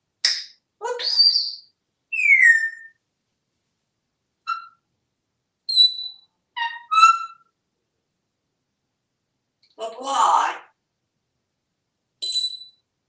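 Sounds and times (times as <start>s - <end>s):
parrot whistling: 1.0s - 3.0s, 4.5s - 4.8s, 5.7s - 7.5s.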